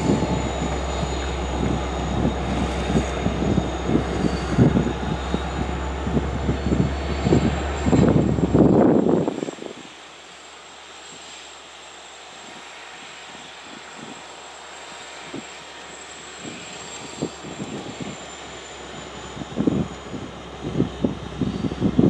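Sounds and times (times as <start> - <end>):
wind buffeting microphone: 0.0 - 10.0, 16.3 - 22.0
engine drone: 0.0 - 22.0
faint high whine: 0.0 - 22.0.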